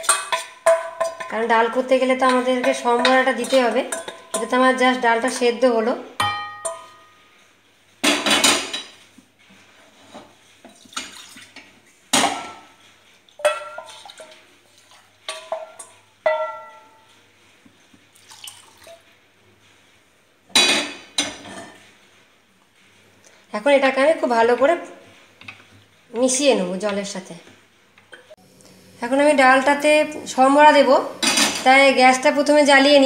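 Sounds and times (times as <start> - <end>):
wooden spatula scraping steel pot: 0.0 - 6.0
steel cookware clanking: 0.0 - 7.2, 8.0 - 9.1, 13.4 - 14.5, 15.2 - 17.2, 31.2 - 31.9.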